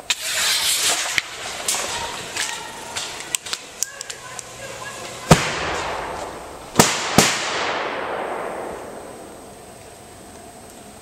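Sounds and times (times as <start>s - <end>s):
hissing after bang: 0.0s - 3.6s
pyrotechnic bangs: 0.0s - 9.7s.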